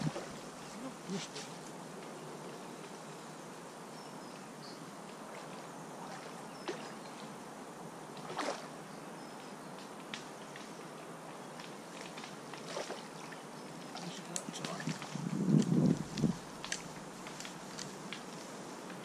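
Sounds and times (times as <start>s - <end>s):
water splashes: 0.0s - 1.3s, 5.3s - 7.0s, 8.2s - 8.7s, 11.9s - 15.3s
lakeside background hiss: 0.0s - 19.0s.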